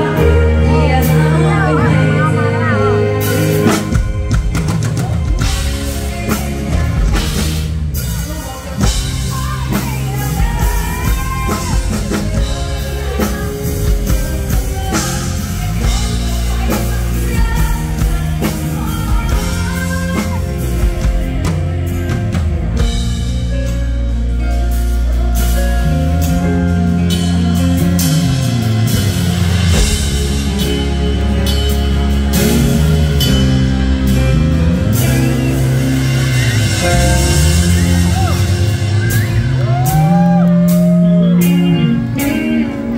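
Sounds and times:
woman singing: 0:00.0 - 0:22.9
drum kit beat: 0:00.0 - 0:42.9
live band playing: 0:00.0 - 0:42.9.

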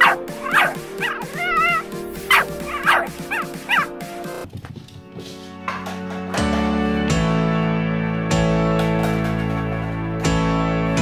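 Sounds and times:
puppy yipping and whining: 0:00.0 - 0:03.9.

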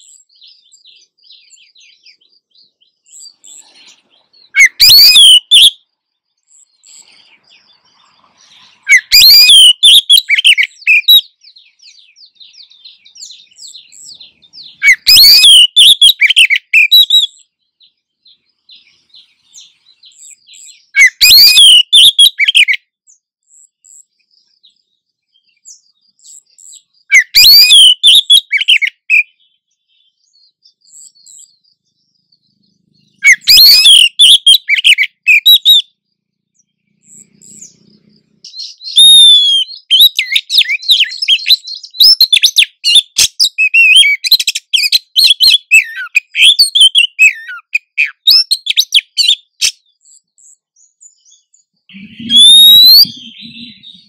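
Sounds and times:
faint rapid bird chattering: 0:00.0 - 0:05.6, 0:06.4 - 0:21.8, 0:30.6 - 0:54.0
bird calling sharp swooping notes: 0:51.9 - 0:54.0.

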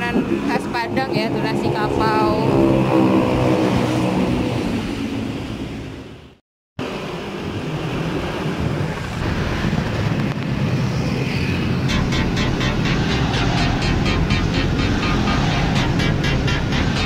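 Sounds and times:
road noise: 0:00.0 - 0:17.0
motorcycle engine: 0:02.2 - 0:04.9, 0:09.0 - 0:17.0
wind rushing over microphone: 0:06.8 - 0:17.0.

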